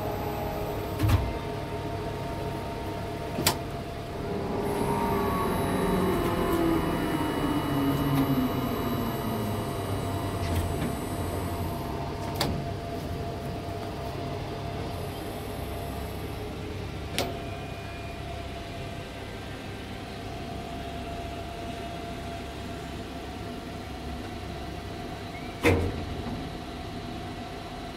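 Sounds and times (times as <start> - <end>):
crane electric drive whine: 0.0 - 27.9.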